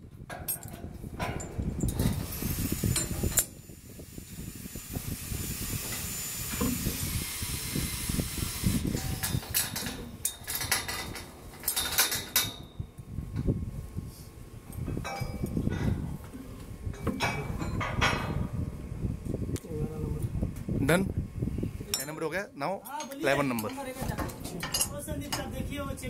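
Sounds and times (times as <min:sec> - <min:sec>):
spanner clinking on bolts: 0:00.3 - 0:02.2, 0:09.0 - 0:12.8, 0:14.7 - 0:15.9, 0:23.0 - 0:25.5.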